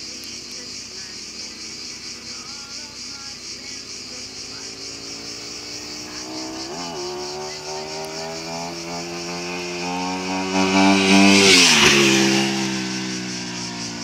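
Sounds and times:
motorcycle engine passing: 0.2s - 14.0s.

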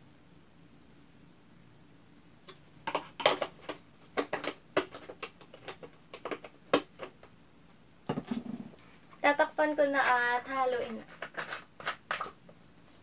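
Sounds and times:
plastic bottle clicking and crackling: 2.5s - 7.3s, 11.0s - 12.4s.

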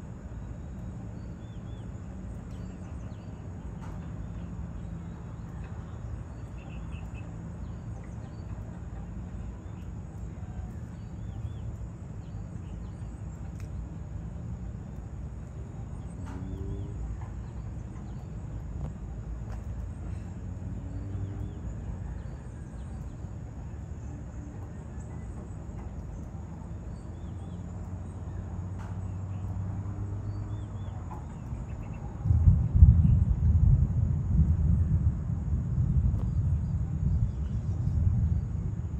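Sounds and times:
steady low rumble: 0.0s - 38.9s
small birds chirping: 0.1s - 33.4s.

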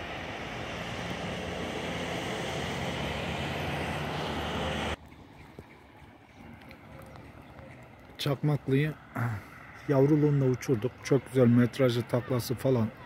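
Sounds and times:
loud rushing and rumbling: 0.0s - 5.0s.

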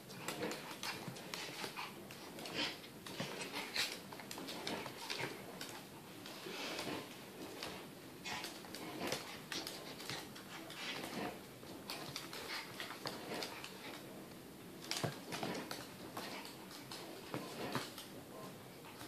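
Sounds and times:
dogs huffing: 0.1s - 14.1s.

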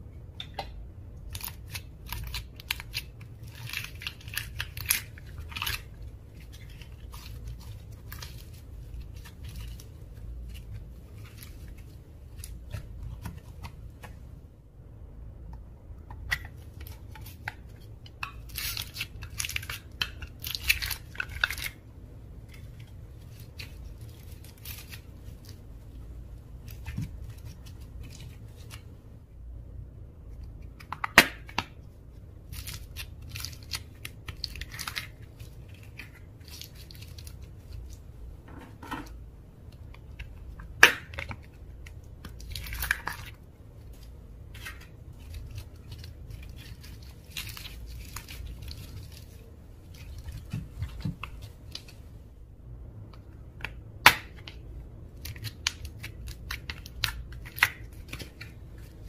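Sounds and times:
slime squishing by hand: 0.4s - 14.5s.

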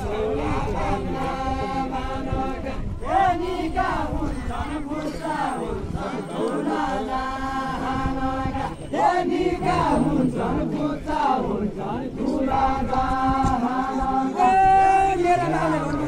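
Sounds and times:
murmuring crowd: 0.0s - 16.0s
voices singing unaccompanied: 0.0s - 16.0s.

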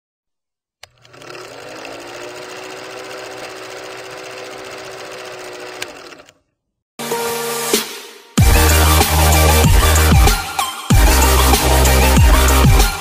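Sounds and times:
projector motor whining: 0.8s - 6.4s.

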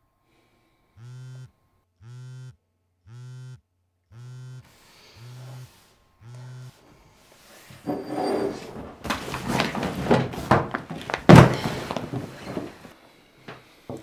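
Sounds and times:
phone vibrating on wooden table: 0.9s - 6.8s.

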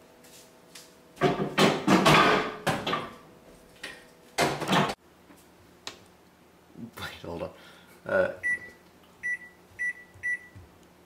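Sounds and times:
scraping and knocking in microwave: 1.2s - 3.2s.

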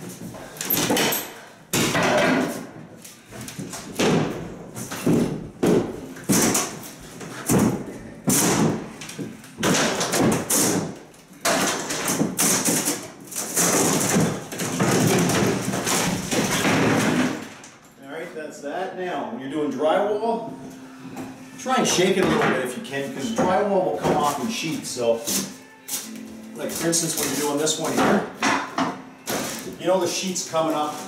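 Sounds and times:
drywall cracking and tearing: 9.6s - 17.8s.

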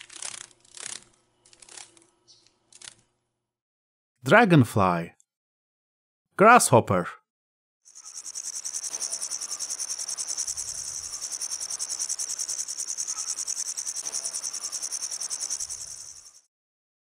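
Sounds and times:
grasshopper chirring: 7.9s - 16.5s.

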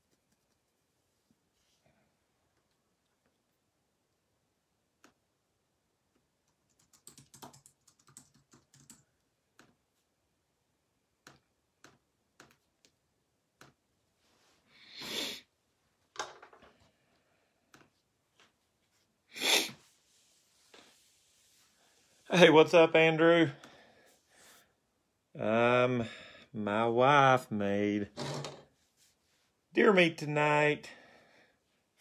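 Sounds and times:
typing on a computer keyboard: 6.4s - 9.8s.

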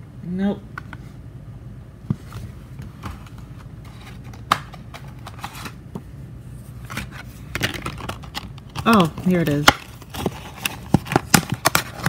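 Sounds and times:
packaging clicks and rustles: 6.8s - 12.0s.

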